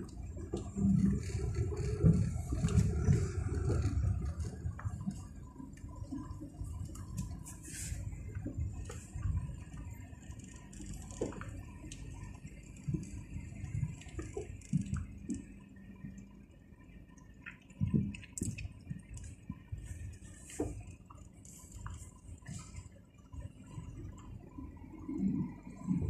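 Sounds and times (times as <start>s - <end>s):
car interior rumble: 0.0s - 26.0s
small clicks and knocks: 10.4s - 16.2s.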